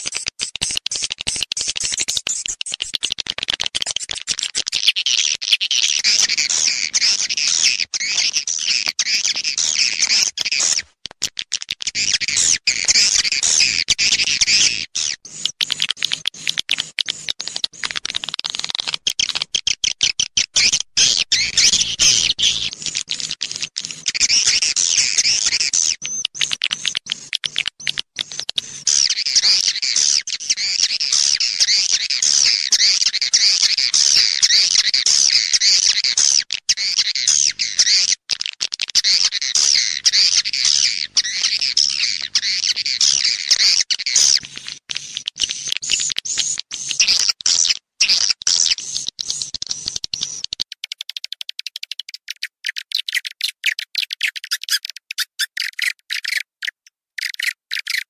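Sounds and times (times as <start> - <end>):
swiftlets twittering: 12.0 - 18.3, 20.6 - 30.5.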